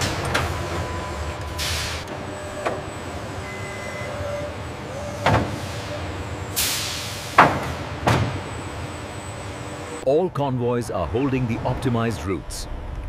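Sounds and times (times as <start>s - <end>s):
machinery low hum: 0.0s - 13.0s
hiss of air: 6.6s - 7.4s.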